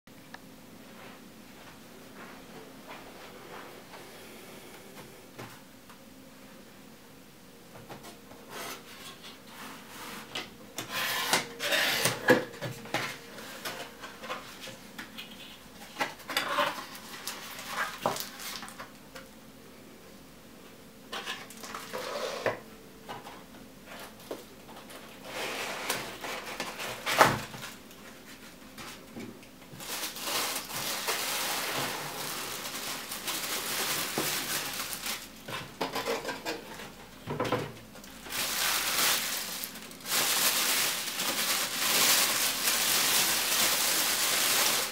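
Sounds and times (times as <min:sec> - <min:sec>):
plastic bag crinkling: 0:16.6 - 0:19.0, 0:29.7 - 0:35.7, 0:38.0 - 0:44.9.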